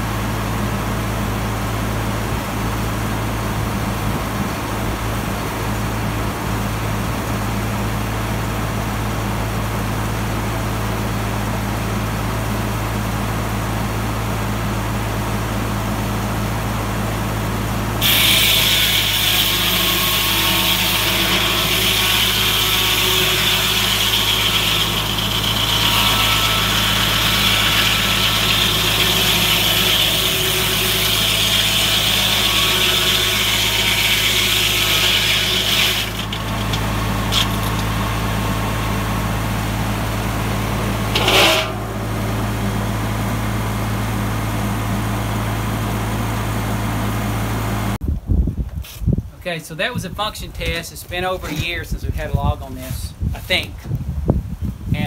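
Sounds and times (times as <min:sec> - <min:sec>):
tractor engine hum: 0:00.0 - 0:48.2
saw blade cutting log: 0:18.0 - 0:38.4, 0:40.9 - 0:42.4.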